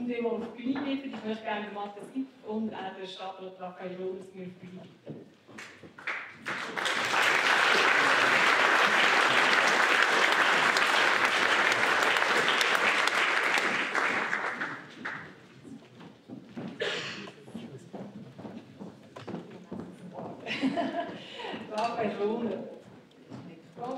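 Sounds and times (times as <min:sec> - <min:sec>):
audience applauding: 0:05.6 - 0:15.5.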